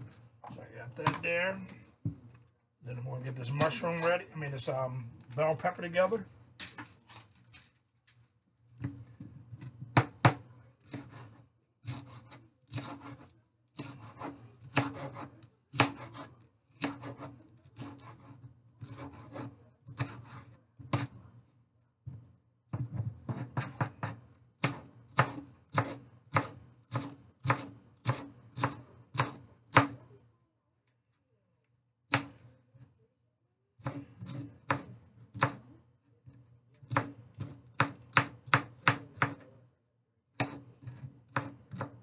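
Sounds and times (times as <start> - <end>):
knife chopping on cutting board: 9.6 - 21.2, 22.8 - 30.0, 32.1 - 32.4, 33.8 - 35.7, 36.9 - 39.5, 40.4 - 42.0.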